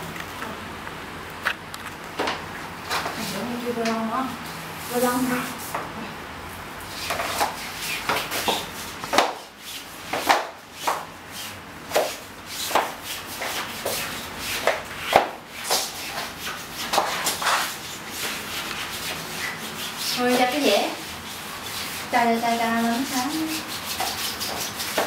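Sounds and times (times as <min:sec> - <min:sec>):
hands rubbing wallpaper on wall: 0:06.8 - 0:25.0.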